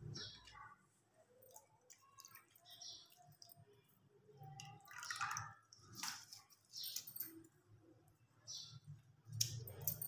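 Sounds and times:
wet drips and plops: 1.4s - 7.3s.

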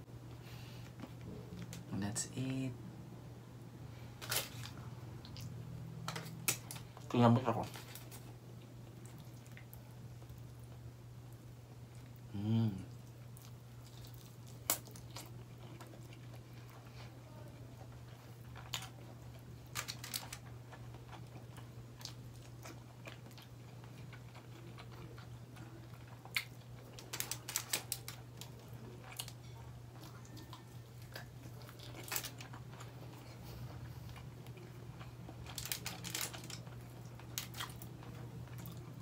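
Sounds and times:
steady low hum: 0.0s - 39.0s
person chewing and lip smacking: 5.2s - 5.6s.

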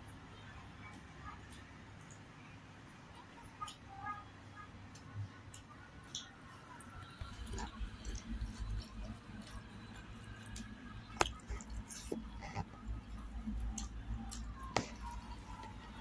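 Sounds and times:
chewing: 4.9s - 16.0s
fingers mixing rice: 4.9s - 16.0s.

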